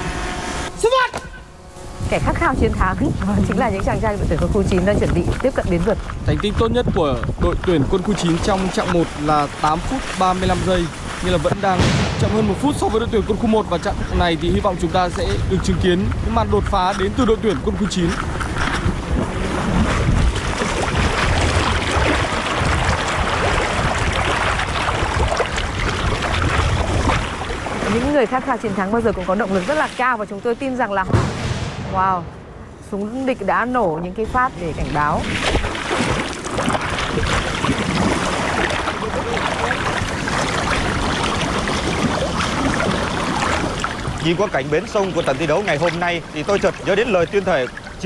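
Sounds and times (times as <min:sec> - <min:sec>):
steady low rumble: 0:00.0 - 0:08.5, 0:10.6 - 0:29.3, 0:30.4 - 0:35.2
water splashing and churning: 0:00.0 - 0:48.0.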